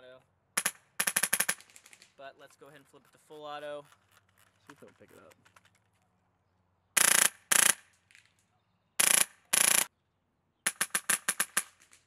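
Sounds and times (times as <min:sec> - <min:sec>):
airsoft rifle firing bursts: 0:00.6 - 0:02.0, 0:07.0 - 0:07.9, 0:09.0 - 0:09.9, 0:10.7 - 0:12.0.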